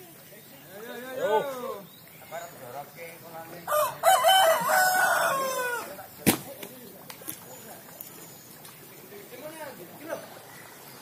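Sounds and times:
rooster crowing: 0:03.7 - 0:06.0.

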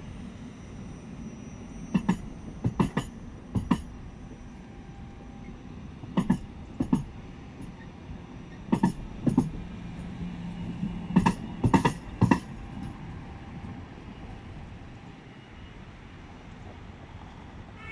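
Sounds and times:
tram wheels clacking over crossing: 0:01.9 - 0:04.2, 0:05.4 - 0:13.1.

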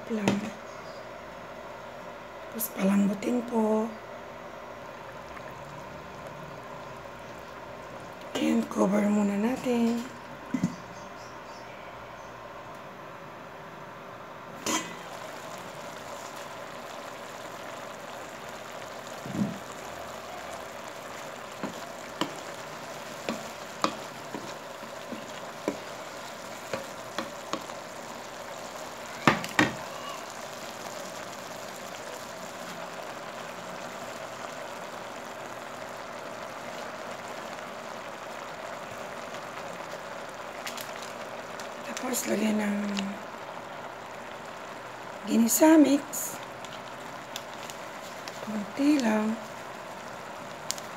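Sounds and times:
squash sizzling in pan: 0:00.0 - 0:11.6, 0:14.6 - 0:50.9
wooden spatula knocking pan: 0:23.2 - 0:25.9, 0:29.2 - 0:29.8.

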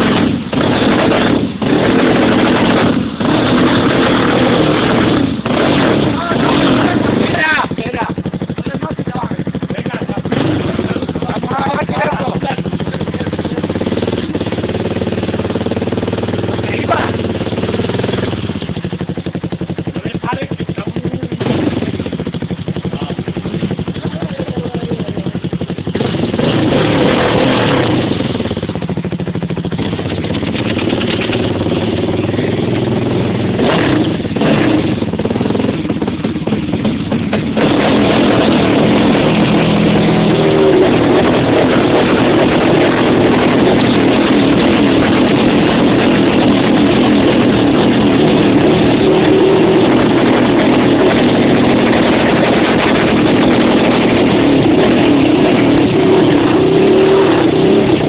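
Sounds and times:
quad bike engine revving: 0:00.0 - 0:58.0.

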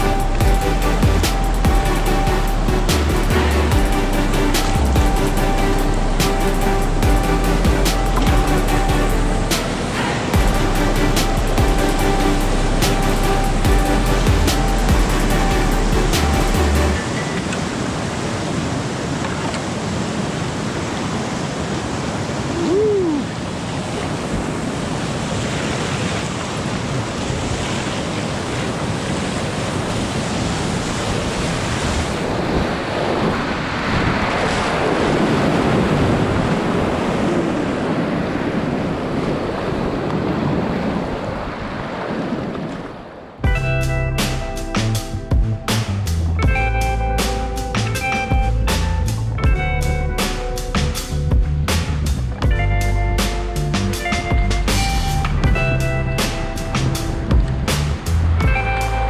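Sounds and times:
whitewater rapids roaring: 0:00.0 - 0:43.3.

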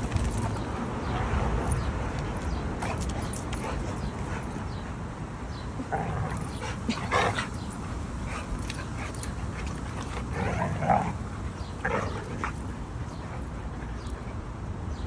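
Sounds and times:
dogs wrestling: 0:00.0 - 0:14.6
dogs short vocal bursts: 0:05.8 - 0:13.9.

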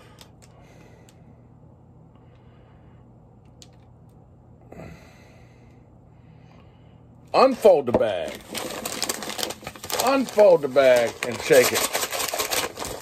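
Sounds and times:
low hum: 0:00.0 - 0:10.0
person sighing: 0:04.6 - 0:05.7.

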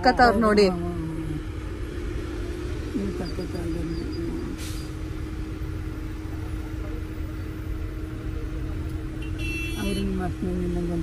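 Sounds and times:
car cabin engine and road rumble: 0:00.0 - 0:11.0.

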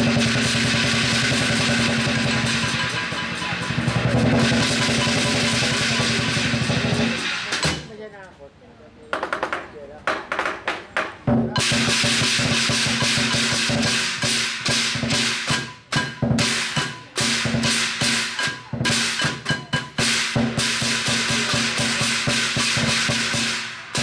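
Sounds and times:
big drum beating: 0:00.0 - 0:08.1, 0:09.2 - 0:24.0
cymbals clashing: 0:00.0 - 0:08.1, 0:11.2 - 0:24.0.

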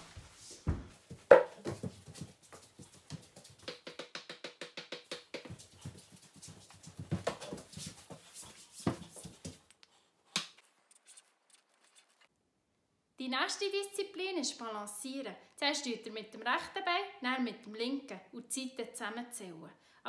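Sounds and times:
quick footsteps on tiled floor: 0:00.0 - 0:04.0, 0:05.0 - 0:09.8.

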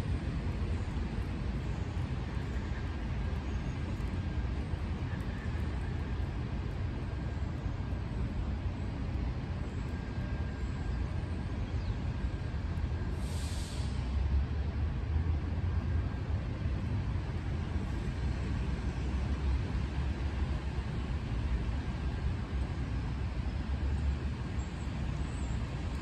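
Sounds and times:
traffic rumble on wet streets: 0:00.0 - 0:26.0
tyre hiss: 0:13.2 - 0:14.1.

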